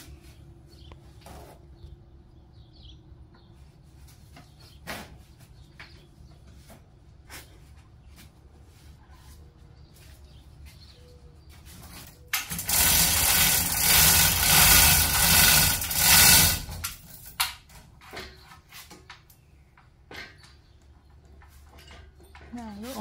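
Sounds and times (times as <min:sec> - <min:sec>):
power tool running: 0:12.4 - 0:17.0.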